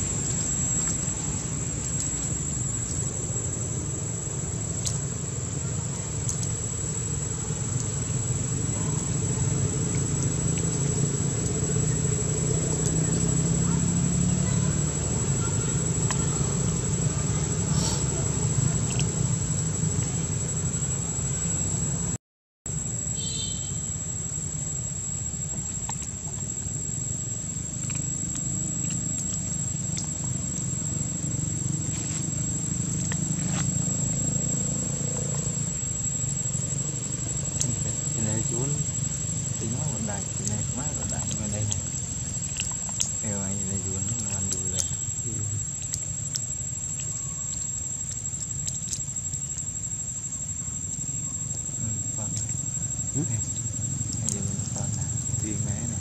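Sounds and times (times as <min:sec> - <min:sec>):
engine idling hum: 0:00.0 - 0:22.2, 0:25.2 - 0:56.0
faint clicks: 0:06.2 - 0:06.6
faint ticks: 0:06.2 - 0:06.6, 0:37.1 - 0:55.6.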